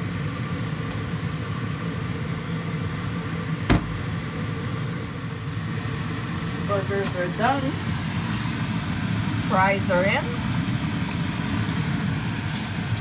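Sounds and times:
fan motor hum: 0:00.0 - 0:13.0
sharp knock: 0:03.7 - 0:04.0.

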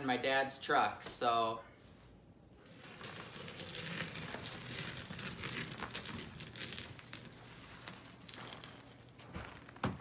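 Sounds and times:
snow and ice crunching: 0:02.6 - 0:10.0.

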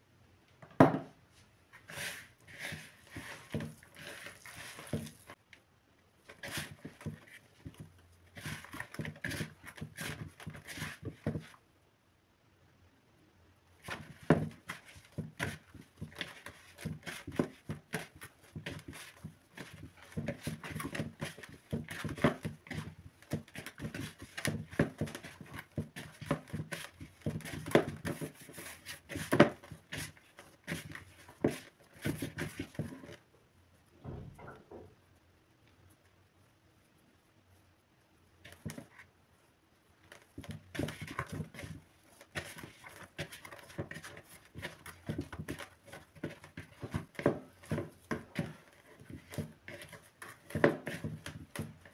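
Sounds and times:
dull knocks on plastic bowl: 0:00.8 - 0:01.1
hands kneading dough: 0:01.2 - 0:05.6, 0:06.2 - 0:11.7, 0:13.8 - 0:34.0, 0:35.2 - 0:51.9.

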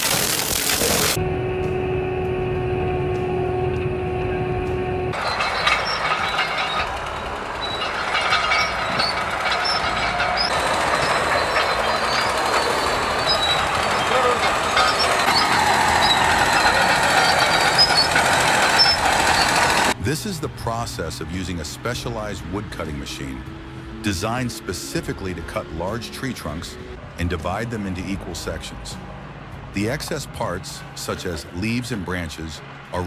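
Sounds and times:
bulldozer engines running: 0:00.2 - 0:33.0
track squealing: 0:00.8 - 0:28.9
mulcher humming: 0:00.9 - 0:21.1
metallic clanks: 0:05.1 - 0:20.0.

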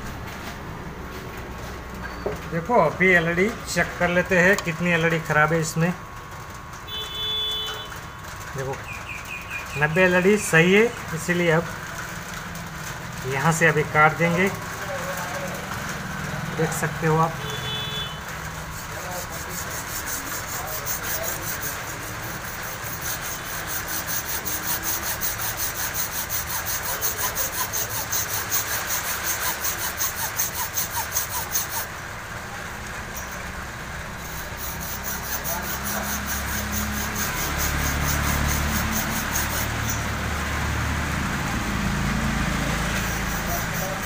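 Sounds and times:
hacksaw cutting circuit board: 0:13.3 - 0:32.0, 0:32.6 - 0:40.5, 0:42.1 - 0:44.0.

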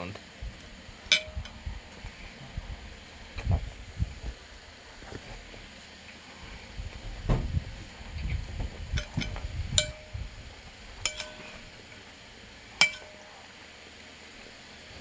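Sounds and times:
spoon clinking against bowl: 0:11.0 - 0:11.6, 0:12.8 - 0:13.2.

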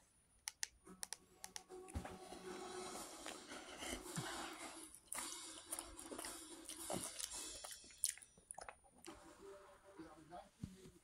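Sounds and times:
person chewing crunchy food: 0:04.5 - 0:09.1.

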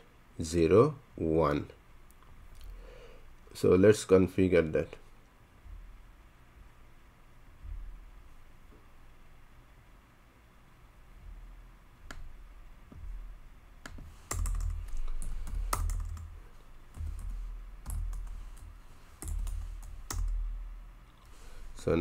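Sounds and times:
keyboard typing: 0:13.8 - 0:21.4.

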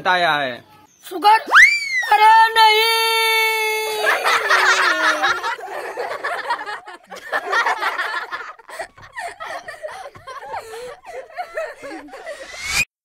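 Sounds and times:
person snickering: 0:08.8 - 0:12.7.

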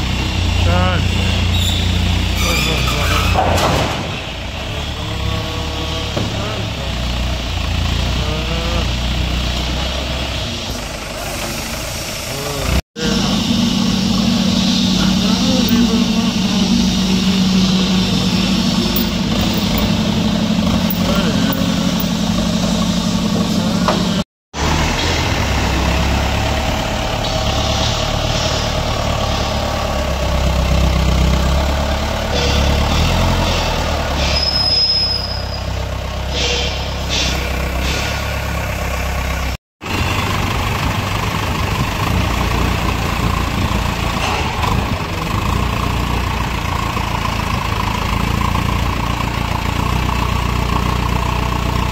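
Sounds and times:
forklift engine rumbling: 0:00.0 - 0:51.9
short high squeal: 0:01.5 - 0:03.5, 0:32.3 - 0:38.4.

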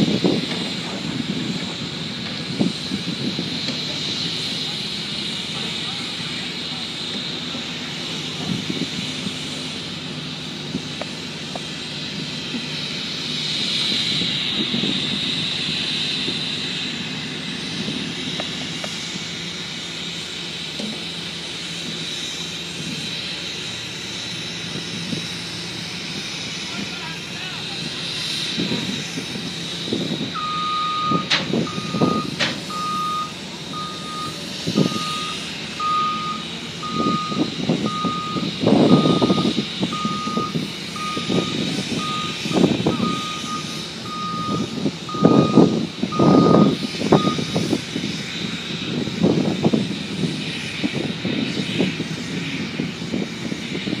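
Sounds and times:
machinery rumbling: 0:00.0 - 0:54.0
vehicle backup alarm beeping: 0:30.3 - 0:47.6.

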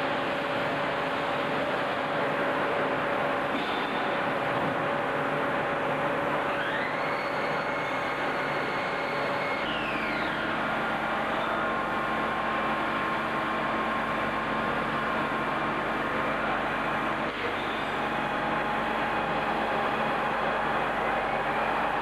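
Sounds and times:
machine whining tones: 0:06.2 - 0:15.0.

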